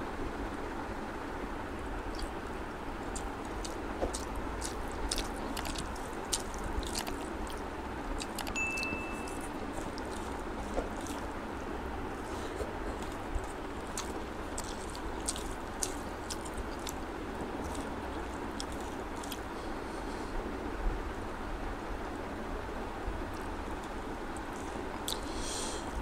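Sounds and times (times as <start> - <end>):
steady background hiss: 0.0 - 26.0
wet chewing sounds: 2.0 - 20.2, 23.3 - 26.0
short high beep: 8.6 - 9.4.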